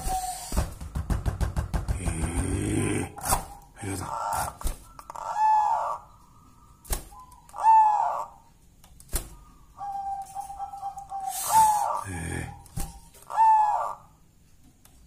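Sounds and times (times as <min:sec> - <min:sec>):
dove cooing: 0:09.4 - 0:14.0.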